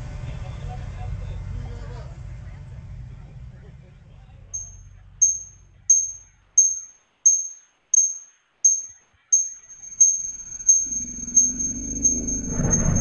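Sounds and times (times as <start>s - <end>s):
high ringing pings: 4.6s - 13.0s
low rumble: 9.7s - 13.0s.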